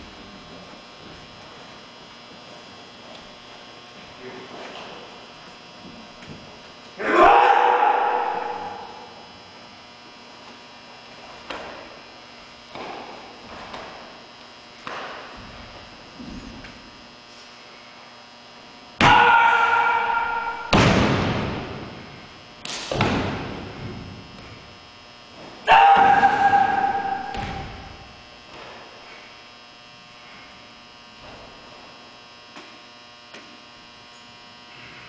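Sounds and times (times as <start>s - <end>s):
loud shout: 7.0s - 9.2s, 19.0s - 20.8s, 25.7s - 27.8s.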